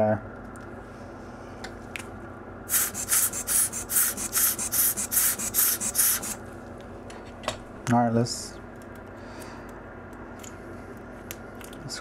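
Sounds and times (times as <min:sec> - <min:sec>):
rhythmic hissing brush strokes: 0:02.7 - 0:06.4.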